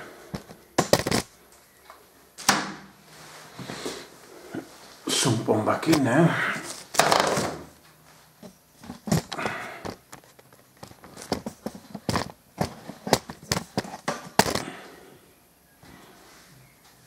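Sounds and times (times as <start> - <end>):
clicks and knocks of handling: 8.8 - 14.6.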